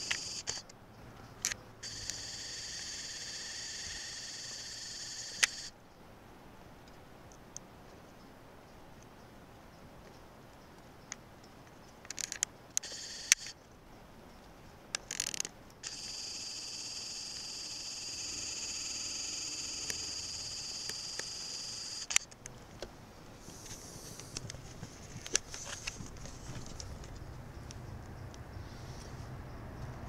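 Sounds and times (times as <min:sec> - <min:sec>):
camcorder zoom motor whining: 0:00.0 - 0:00.6, 0:01.8 - 0:05.7, 0:12.8 - 0:13.6, 0:15.8 - 0:22.3.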